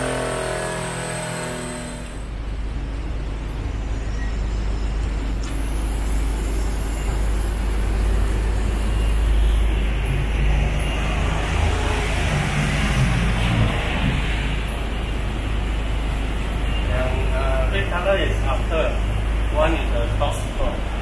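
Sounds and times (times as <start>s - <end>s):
engine roaring on dynamometer: 0.0s - 2.4s, 5.8s - 15.0s.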